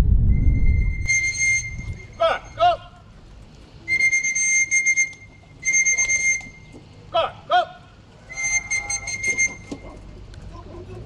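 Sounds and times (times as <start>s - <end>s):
short calls: 4.0s - 10.2s.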